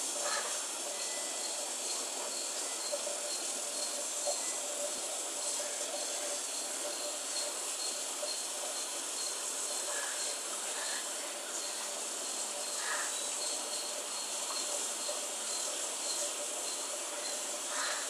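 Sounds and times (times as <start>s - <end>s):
steady hiss: 0.0s - 18.0s
insect trilling: 0.2s - 18.0s.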